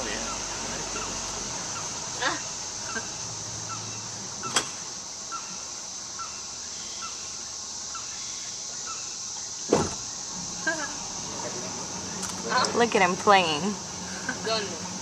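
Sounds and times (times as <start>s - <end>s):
high-pitched hiss: 0.0s - 15.0s.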